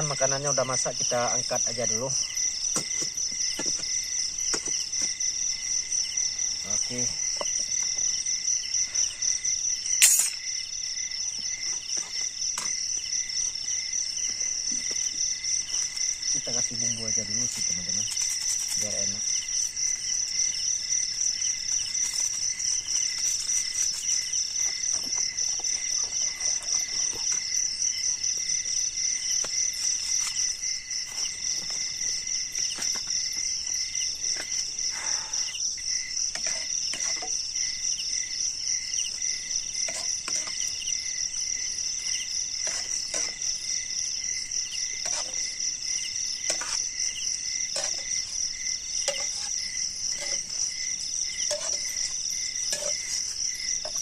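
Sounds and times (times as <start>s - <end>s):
night insects trilling: 0.0s - 54.0s
spoon scraping in a wok: 36.3s - 37.4s, 39.8s - 40.8s, 42.6s - 43.6s, 45.0s - 45.6s, 46.4s - 47.0s, 47.6s - 54.0s.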